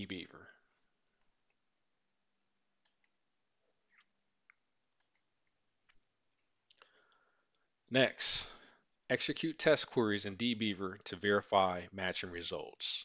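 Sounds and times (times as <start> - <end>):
computer mouse clicks: 2.8 - 3.2, 3.9 - 5.6.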